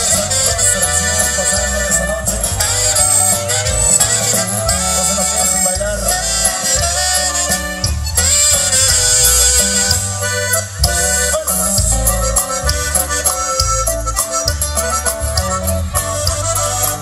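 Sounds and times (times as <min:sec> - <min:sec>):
button accordion melody: 0:00.0 - 0:17.0
electric bass: 0:00.0 - 0:17.0
guitar: 0:00.0 - 0:17.0
steady drum beat: 0:00.0 - 0:17.0.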